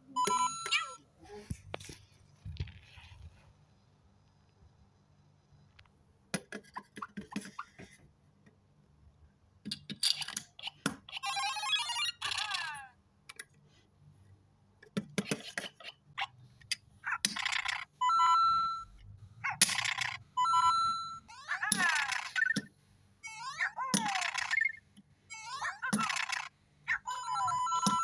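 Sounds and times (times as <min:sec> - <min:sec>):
plastic pieces clicking: 0:17.2 - 0:17.9, 0:19.6 - 0:20.2, 0:23.9 - 0:24.8, 0:25.9 - 0:26.5
electronic game sound effects: 0:27.1 - 0:28.0.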